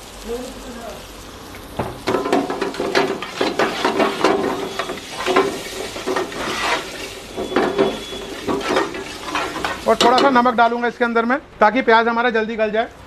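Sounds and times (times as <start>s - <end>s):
metal spoon scraping frying pan: 2.1s - 10.4s.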